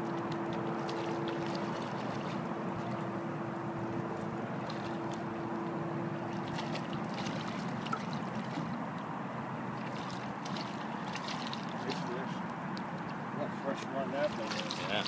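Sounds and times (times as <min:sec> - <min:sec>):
fish splashing at surface: 0:00.3 - 0:03.0, 0:04.6 - 0:05.3, 0:06.2 - 0:08.9, 0:09.8 - 0:12.2, 0:14.2 - 0:15.0.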